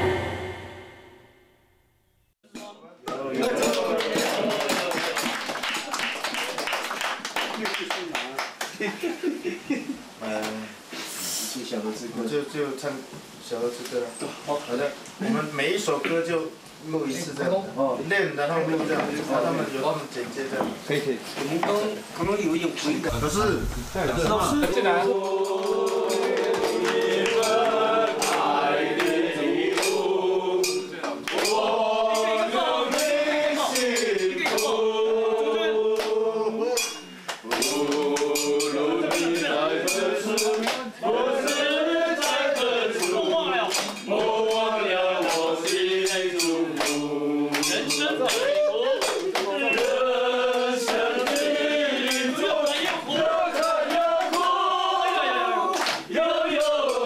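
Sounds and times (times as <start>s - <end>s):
group singing: 0.0s - 1.5s, 23.1s - 57.0s
percussive strikes: 0.0s - 1.6s.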